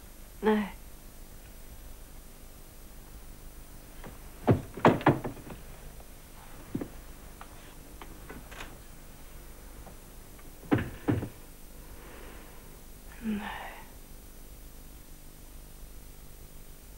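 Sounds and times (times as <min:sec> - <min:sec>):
room hum: 0:00.0 - 0:16.9
dull thumps: 0:04.0 - 0:07.0, 0:09.8 - 0:11.5.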